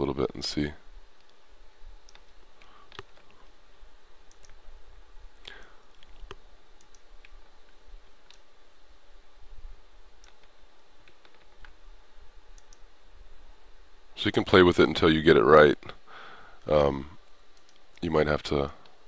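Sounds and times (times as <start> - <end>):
faint low hum: 0.0 - 19.0
mouse and keyboard clicks: 2.0 - 3.4, 4.3 - 4.6, 5.9 - 7.4, 10.2 - 11.8.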